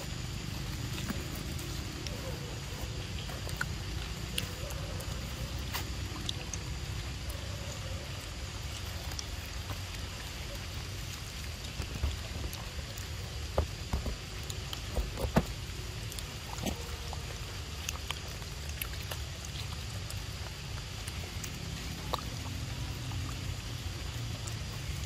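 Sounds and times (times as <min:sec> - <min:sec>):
low outdoor rumble: 0:00.0 - 0:25.0
monkeys smacking and knocking: 0:11.7 - 0:15.7.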